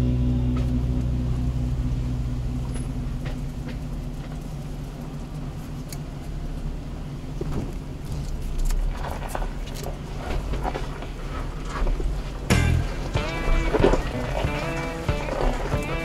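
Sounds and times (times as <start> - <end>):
engine and drivetrain rumble: 0.0 - 16.0
sharp knocks and rattles: 7.4 - 16.0.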